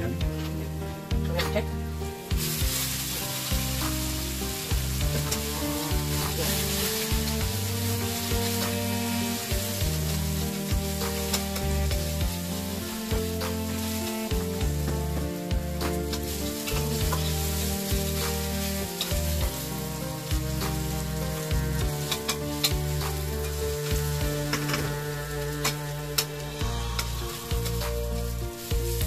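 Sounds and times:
onions sizzling in oil: 0.0 - 29.0
spatula scraping pan: 15.8 - 28.9.

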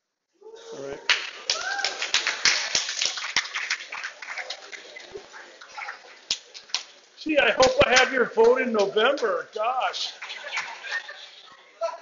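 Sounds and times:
people cheering and whooping: 0.4 - 2.8, 10.2 - 11.6
audience clapping: 1.1 - 7.0, 7.6 - 9.5, 10.1 - 11.2.

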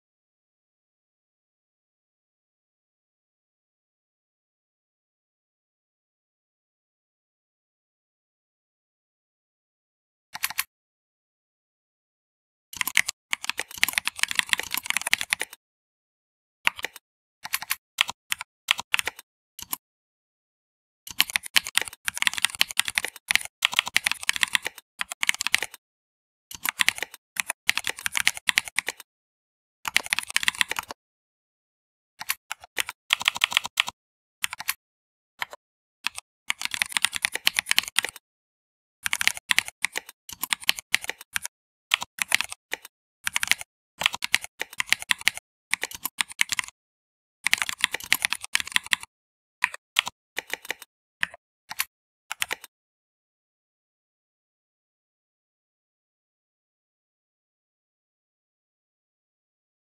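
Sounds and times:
typing on computer keyboard: 10.4 - 10.7, 12.8 - 15.6, 16.7 - 19.8, 21.1 - 25.8, 26.5 - 29.1, 29.9 - 31.0, 32.2 - 34.8, 35.4 - 38.2, 39.0 - 46.8, 47.4 - 52.7.

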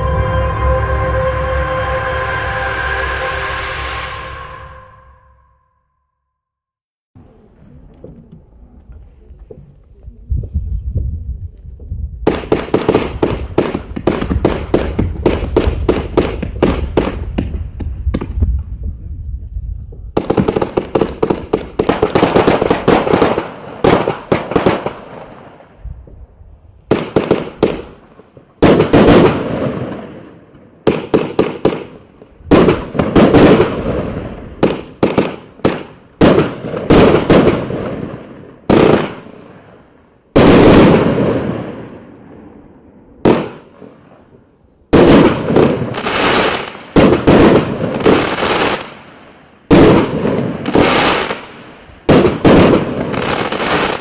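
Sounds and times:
fireworks firing volleys: 20.1 - 25.9, 26.9 - 42.6, 44.9 - 54.0.

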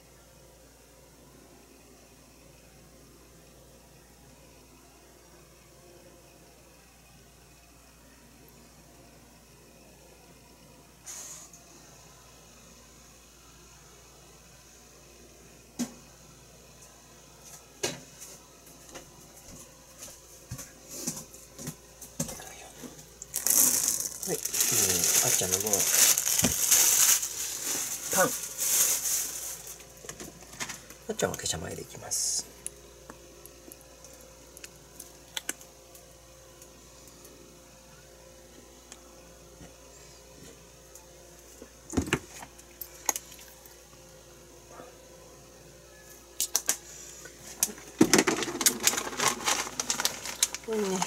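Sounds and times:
low room hum: 0.0 - 51.0.

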